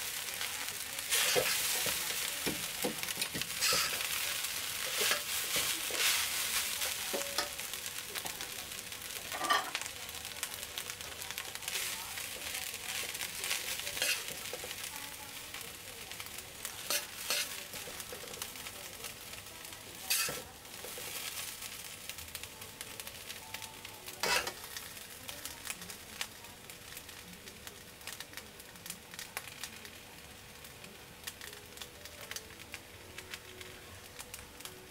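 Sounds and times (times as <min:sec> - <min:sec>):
food sizzling in a wok: 0:00.0 - 0:34.9
metal spatula scraping wok: 0:01.0 - 0:07.8, 0:09.3 - 0:09.9, 0:11.7 - 0:14.9, 0:16.7 - 0:18.4, 0:20.0 - 0:21.7, 0:24.2 - 0:24.8
utensils knocking against wok: 0:01.1 - 0:04.2, 0:09.3 - 0:09.8, 0:20.1 - 0:21.2.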